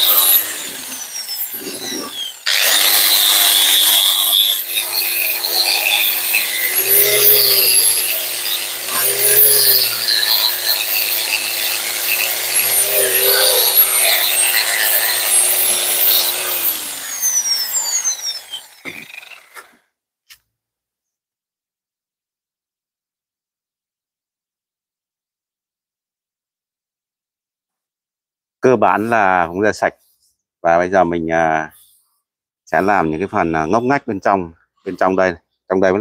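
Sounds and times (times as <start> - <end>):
metallic scraping: 0.0 - 19.6
angle grinder motor whine: 0.0 - 19.7.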